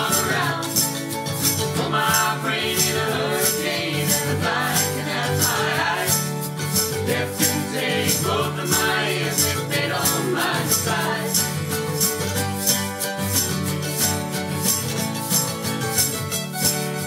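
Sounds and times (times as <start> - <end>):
voices singing in harmony: 0.0 - 11.8
mandolin: 0.0 - 17.0
shaker beat: 0.0 - 17.0
strummed acoustic guitar: 0.0 - 17.0.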